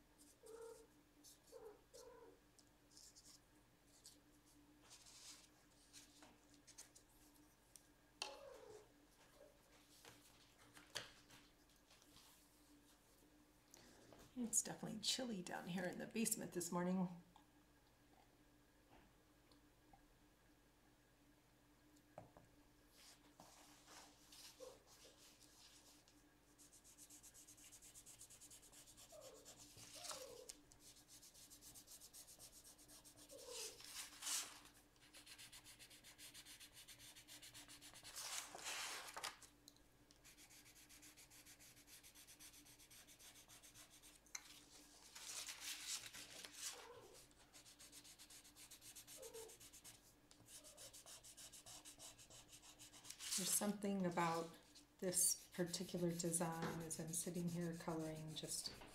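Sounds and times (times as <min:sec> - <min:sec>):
pencil scratching on paper: 0:26.6 - 0:33.9, 0:35.1 - 0:38.1, 0:40.2 - 0:44.2, 0:47.5 - 0:53.6, 0:55.1 - 0:58.7.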